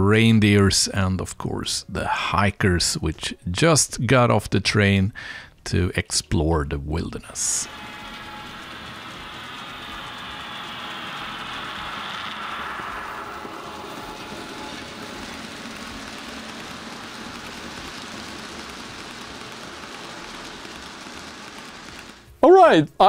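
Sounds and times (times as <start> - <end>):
model train motor whine: 7.4 - 22.3
wagons rumbling along track: 7.6 - 22.2.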